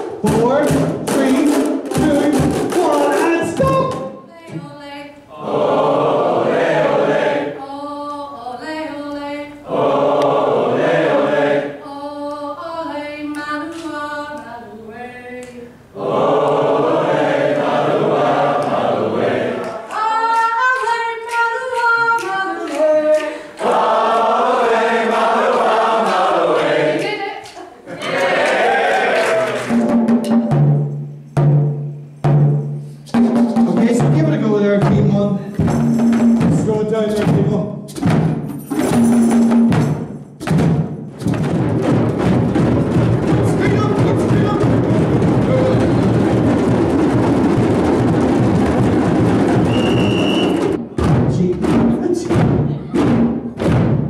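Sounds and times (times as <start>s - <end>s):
group of adults singing: 5.3s - 14.4s, 15.5s - 29.6s.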